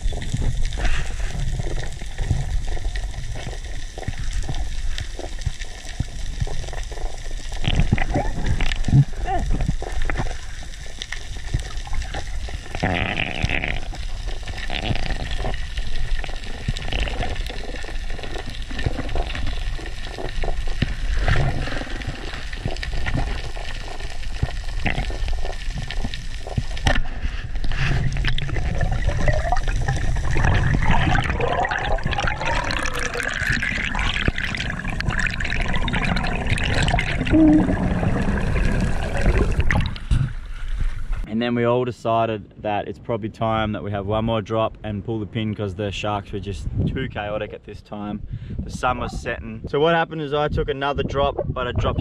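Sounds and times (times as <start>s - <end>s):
underwater clicks: 0.0s - 41.2s
underwater water rushing and gurgling: 0.0s - 41.3s.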